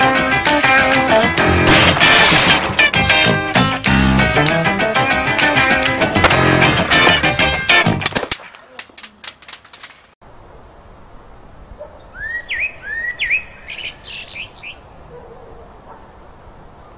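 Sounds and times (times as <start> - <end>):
crackling clicks: 7.9 - 10.2.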